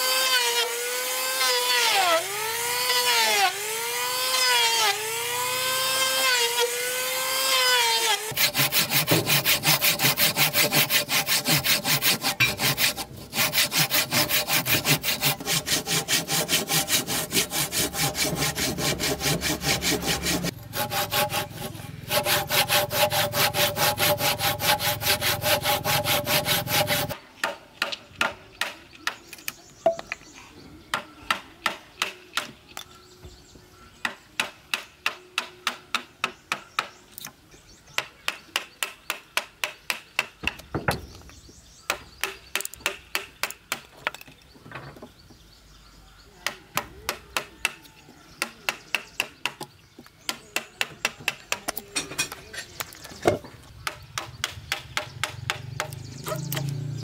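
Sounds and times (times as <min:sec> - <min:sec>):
saw cutting through wood: 0:00.0 - 0:27.2.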